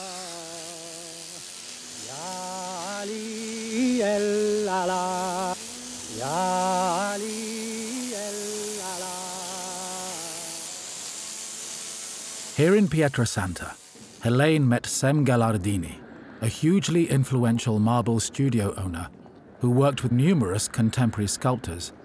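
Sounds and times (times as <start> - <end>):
man singing with vibrato: 0.0 - 1.4, 2.0 - 10.9
pneumatic tools hissing: 0.0 - 14.6.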